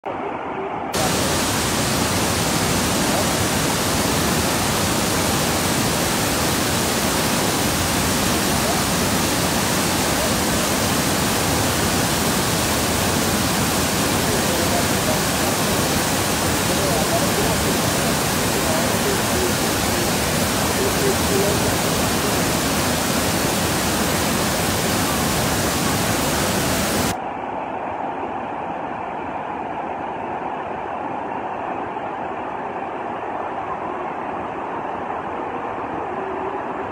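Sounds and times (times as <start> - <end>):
river rushing over rapids: 1.0 - 27.2.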